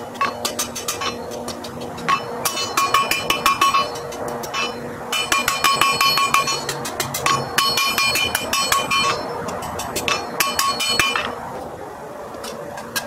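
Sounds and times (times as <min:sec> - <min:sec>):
hammer ringing on anvil: 0:02.1 - 0:09.4, 0:10.1 - 0:11.3.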